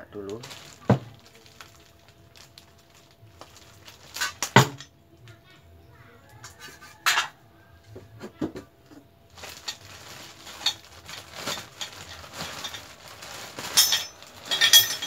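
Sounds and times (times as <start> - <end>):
plastic wrapping crinkling: 0.2 - 4.9, 9.3 - 15.0.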